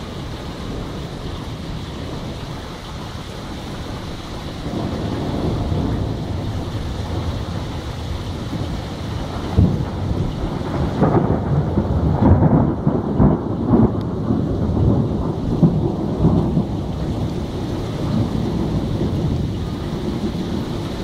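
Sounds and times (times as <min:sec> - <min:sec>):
steady rain: 0:00.0 - 0:21.0
thunder rolling and crackling: 0:00.0 - 0:21.0.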